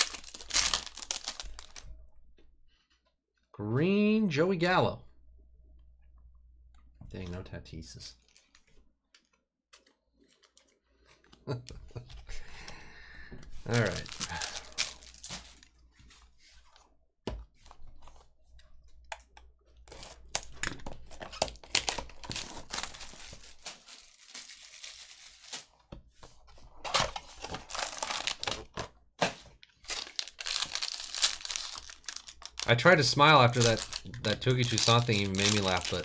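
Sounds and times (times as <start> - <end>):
plastic wrapper crinkling: 0.0 - 2.0, 8.2 - 8.8, 13.6 - 15.8, 19.9 - 25.7, 27.4 - 28.8, 29.7 - 36.0.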